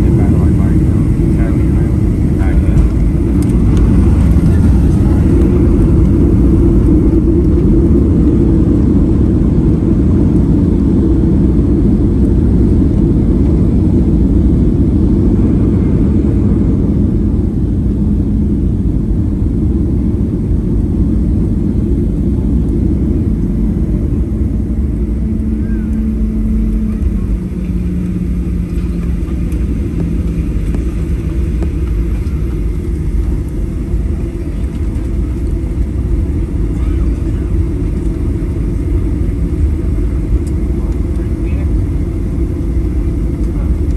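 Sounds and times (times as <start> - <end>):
faint hum dropping in pitch: 0.0 - 43.9
jet rumble in cabin: 0.0 - 43.9.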